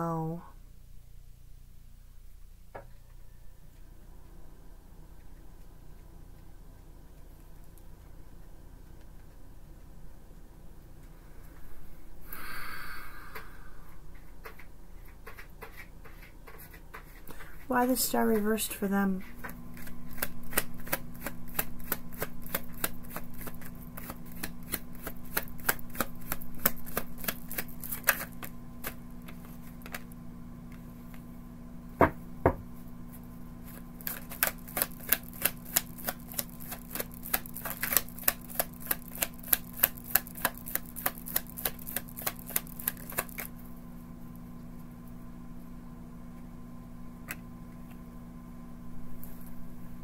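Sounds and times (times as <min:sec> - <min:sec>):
cards being shuffled: 0:19.2 - 0:30.1, 0:33.6 - 0:43.6.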